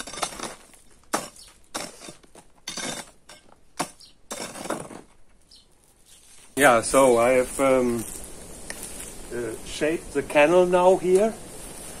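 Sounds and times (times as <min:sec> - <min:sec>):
hoe blade clinking on stones: 0:00.0 - 0:05.6
hoe scraping soil: 0:00.0 - 0:09.2.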